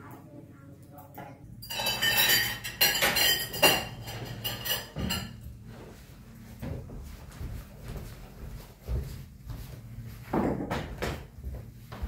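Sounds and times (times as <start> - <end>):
cutlery clinking on china plates: 1.6 - 5.4
chairs knocking: 10.2 - 11.4.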